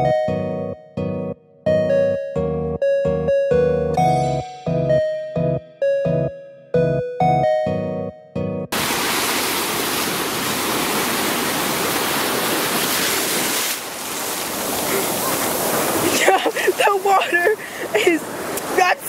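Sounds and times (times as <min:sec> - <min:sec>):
short bright music notes: 0:03.6 - 0:08.7
ocean surf washing up: 0:08.7 - 0:19.0.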